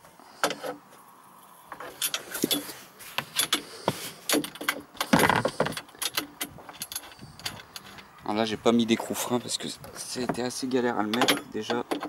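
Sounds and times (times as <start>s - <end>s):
metal rattle: 1.7s - 12.0s
metal spanner clicking on bolt: 11.1s - 12.0s.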